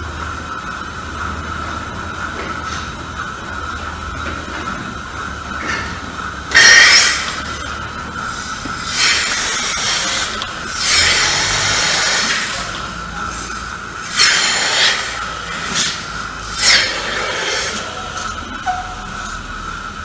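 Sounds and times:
milking machine high tone: 0:05.3 - 0:20.0.

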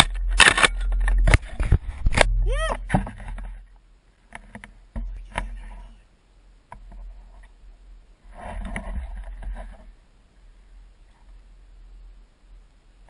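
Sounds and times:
wind rumbling on microphone: 0:00.0 - 0:03.8
sharp clicks and knocks: 0:00.0 - 0:05.7
rustling: 0:06.7 - 0:11.6.

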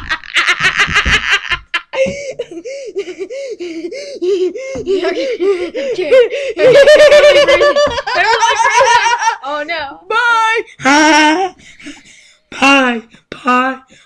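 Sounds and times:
boy laughing annoyingly: 0:00.0 - 0:09.5, 0:10.5 - 0:12.2.

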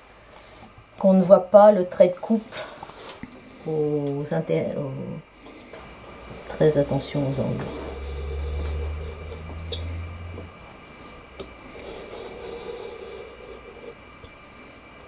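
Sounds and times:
low hum: 0:05.8 - 0:15.0.

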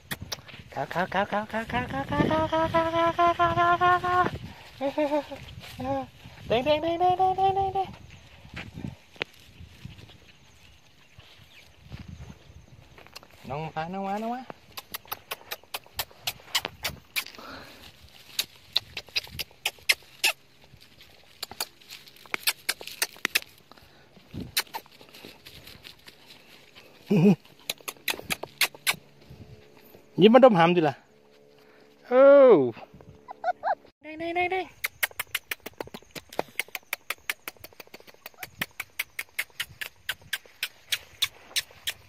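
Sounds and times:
person clicking tongue: 0:00.0 - 0:00.5, 0:14.7 - 0:17.5, 0:18.4 - 0:20.4, 0:21.4 - 0:21.7, 0:22.3 - 0:23.5, 0:24.6 - 0:24.9, 0:27.6 - 0:29.0, 0:34.8 - 0:42.0
dry grass stalks crackling: 0:03.9 - 0:30.6.

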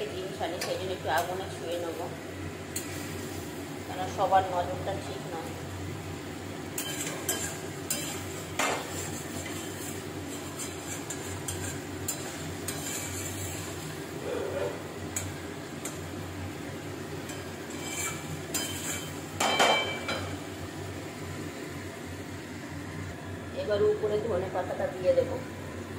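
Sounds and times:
spatula scraping metal pan: 0:06.8 - 0:13.7, 0:17.3 - 0:19.2.

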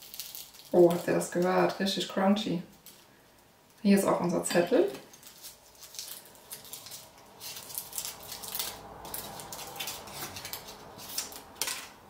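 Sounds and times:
paper rustling and crinkling: 0:05.0 - 0:12.0.

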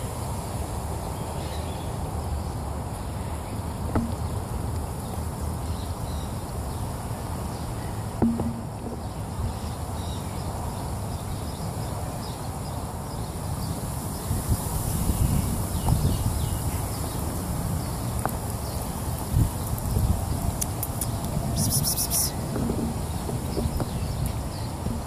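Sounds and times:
faint bird chirps: 0:20.3 - 0:24.8.

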